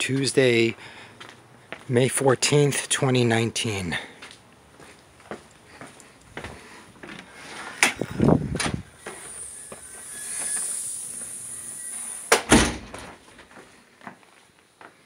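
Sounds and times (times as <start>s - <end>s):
long hiss: 8.9s - 12.9s
heavy thud: 12.4s - 13.2s.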